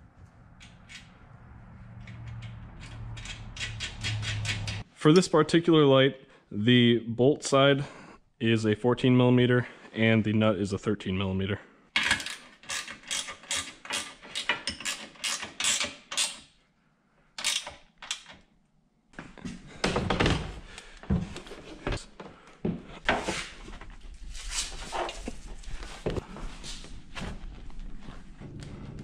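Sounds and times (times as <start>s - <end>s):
ratcheting wrench clicking: 2.0s - 4.8s, 12.1s - 16.5s, 17.4s - 18.3s.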